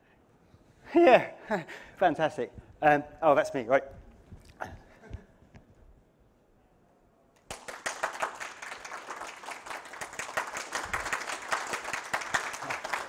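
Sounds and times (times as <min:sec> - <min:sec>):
audience applause: 0:07.5 - 0:13.0.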